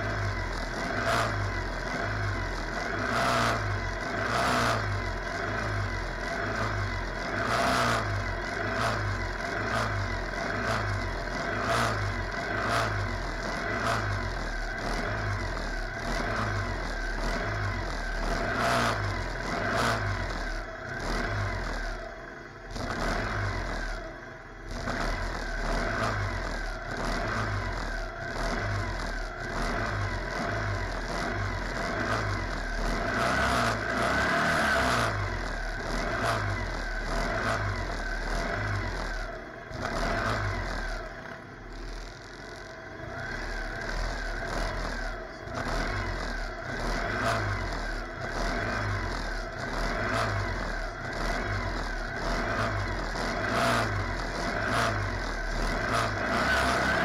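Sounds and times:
buggy engines idling: 0:00.0 - 0:57.0
engine throttle blips: 0:00.0 - 0:57.0.

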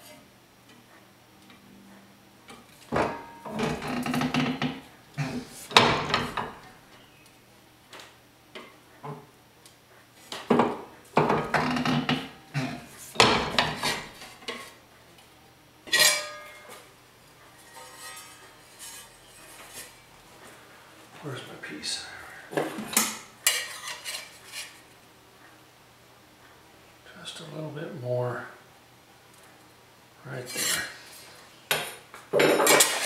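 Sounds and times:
sharp ringing metal clang: 0:15.9 - 0:16.7.

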